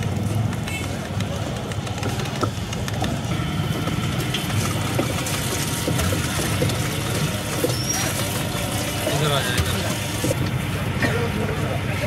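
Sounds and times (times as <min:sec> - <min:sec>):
juicer machine humming: 0:03.3 - 0:10.7
juice streaming into a jug: 0:03.6 - 0:10.4.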